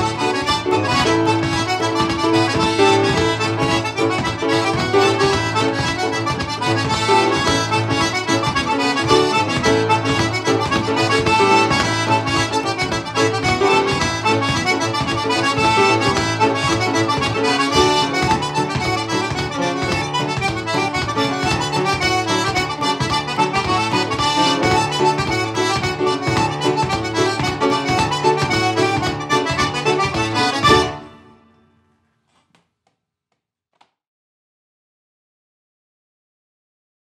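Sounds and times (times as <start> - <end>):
button accordion: 0.0 - 31.6.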